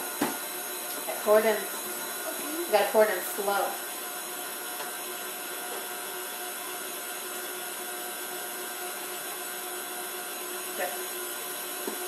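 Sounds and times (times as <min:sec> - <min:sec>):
stand mixer motor whining: 0:00.0 - 0:12.0.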